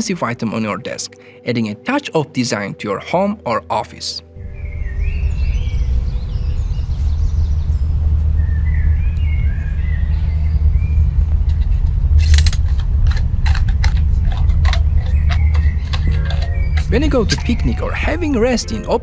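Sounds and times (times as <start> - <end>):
birds chirping: 4.4 - 19.0
loud steady low rumble: 4.4 - 19.0.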